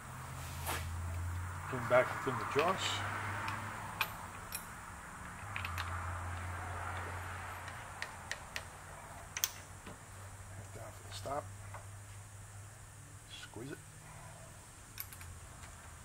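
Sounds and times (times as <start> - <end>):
steady low hum: 0.0 - 16.0
metallic clicks and taps: 3.4 - 9.7.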